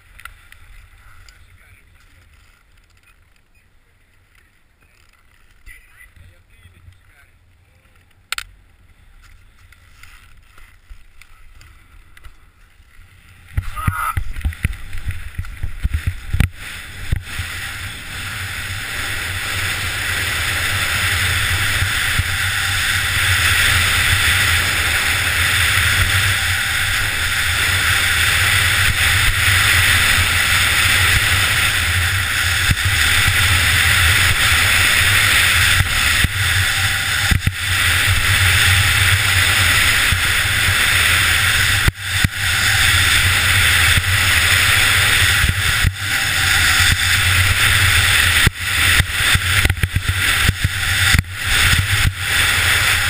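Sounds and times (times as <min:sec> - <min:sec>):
skis hissing on snow: 0:15.9 - 0:53.0.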